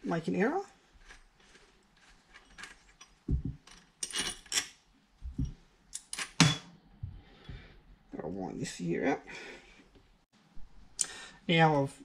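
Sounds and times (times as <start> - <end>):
small metal parts clinking: 2.0 - 4.8.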